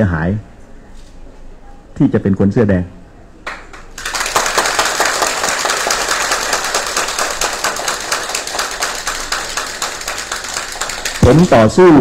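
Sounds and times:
audience applauding: 3.5 - 11.8.

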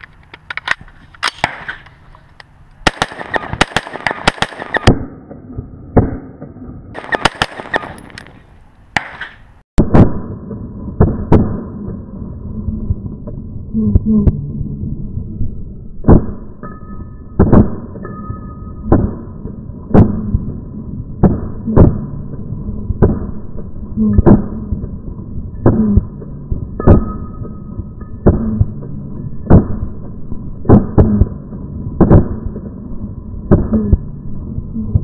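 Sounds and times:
rifle shots: 1.2 - 1.9, 2.8 - 5.2, 7.0 - 8.4, 9.0 - 10.3.

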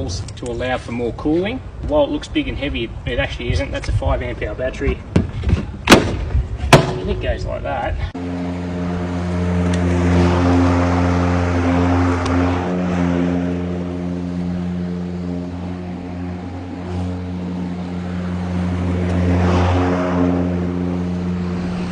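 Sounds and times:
lawn mower cutting grass: 8.2 - 21.9.

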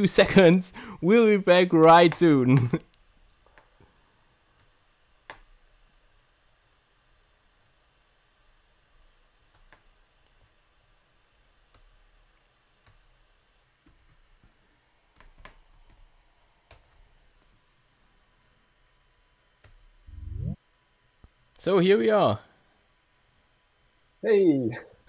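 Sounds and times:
laptop keyboard typing clicks: 9.5 - 9.9, 15.1 - 17.0.

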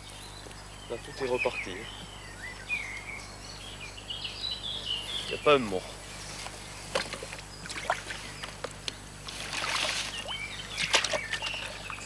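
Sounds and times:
water splashing and sloshing: 6.9 - 8.6, 9.2 - 12.0
fish splashing in water: 7.0 - 8.2, 9.2 - 12.0.

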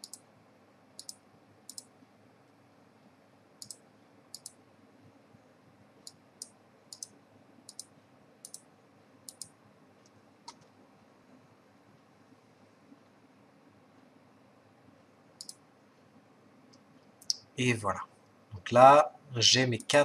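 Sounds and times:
computer mouse clicking: 0.0 - 0.2, 1.0 - 1.9, 3.6 - 4.6, 6.0 - 8.7, 9.3 - 10.7, 15.4 - 15.6.

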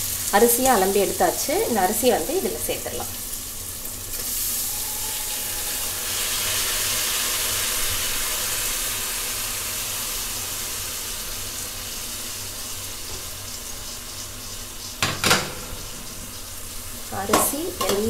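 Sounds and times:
rice sizzling in hot oil: 0.0 - 18.0.

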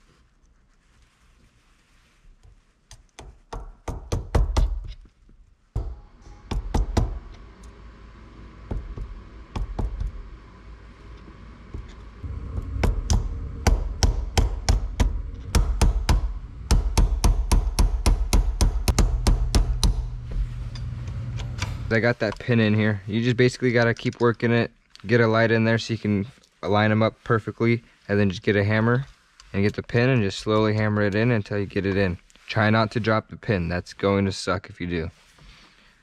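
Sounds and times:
small hammer tapping metal: 14.0 - 20.1.

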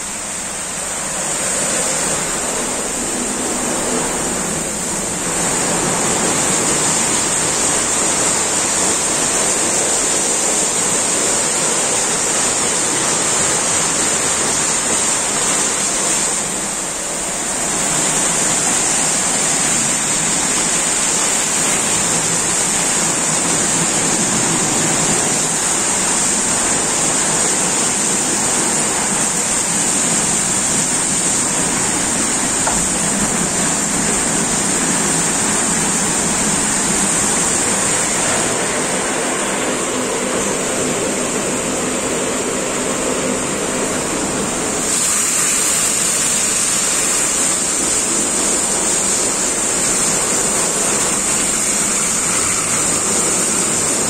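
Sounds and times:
water jets spraying: 0.0 - 54.0
rotating brushes scrubbing: 1.0 - 39.6.

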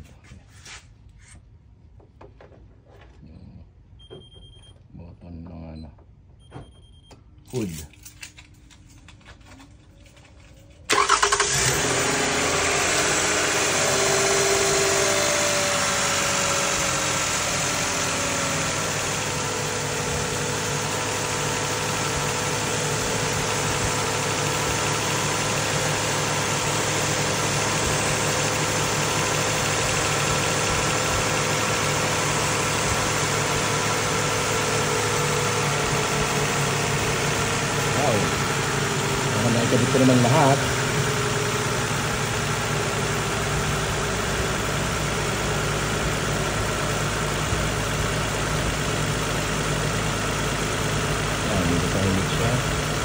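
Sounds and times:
car engine starting and idling: 6.4 - 53.0.

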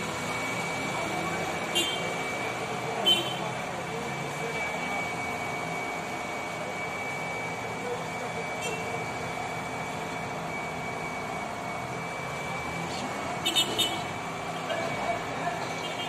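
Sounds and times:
excavator diesel engine running: 0.0 - 16.0
thin high whine: 0.0 - 16.0.

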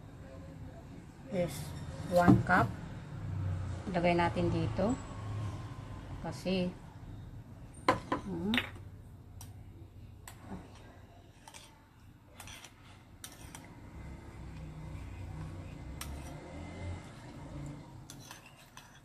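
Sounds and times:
spoon scraping ceramic bowl: 10.3 - 19.0.

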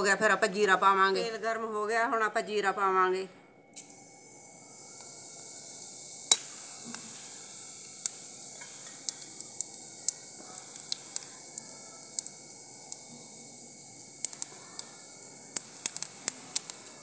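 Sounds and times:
seeds sizzling in hot oil: 3.8 - 17.0
sharp crackling clicks: 7.8 - 13.3, 14.2 - 17.0.

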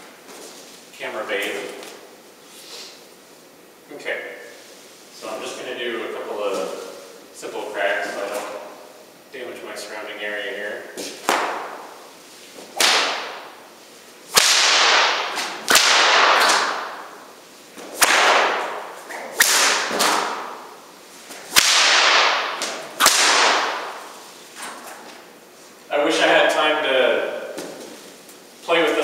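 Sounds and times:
whip cracks echoing: 11.0 - 13.6, 14.3 - 25.1.

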